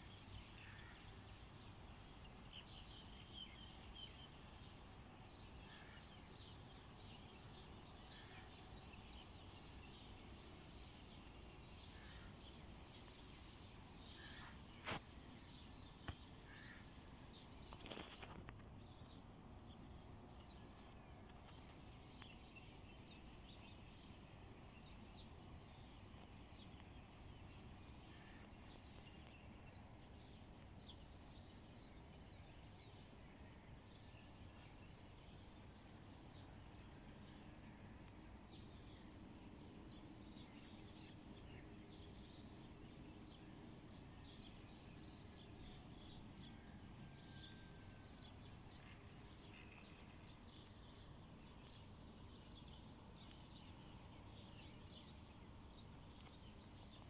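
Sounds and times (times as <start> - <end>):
faint birds chirping: 0.0 - 57.0
brief rustle: 12.0 - 15.1, 17.6 - 18.8.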